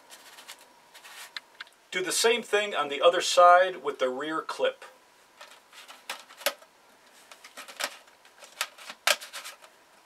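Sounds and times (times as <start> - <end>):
plastic clicking and rattling: 5.4 - 6.7, 7.3 - 9.8.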